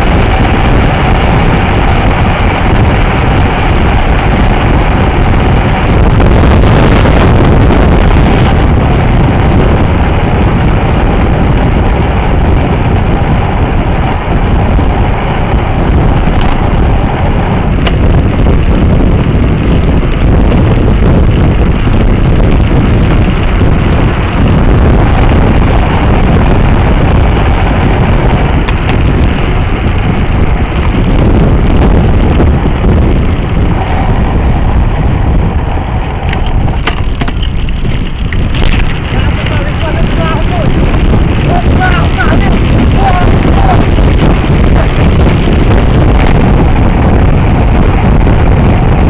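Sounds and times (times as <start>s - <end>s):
loud wind: 0.0s - 49.0s
road rumble: 0.0s - 49.0s
sharp knocks from road bumps: 36.3s - 39.0s.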